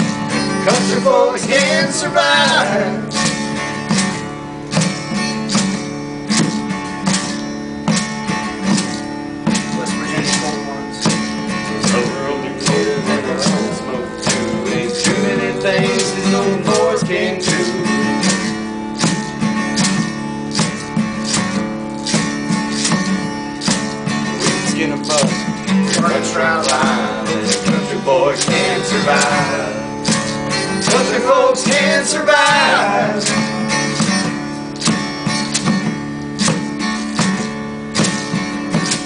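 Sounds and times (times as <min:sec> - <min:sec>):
acoustic guitar strumming: 0:00.0 - 0:39.0
percussive beats on kitchen utensils: 0:12.7 - 0:39.0.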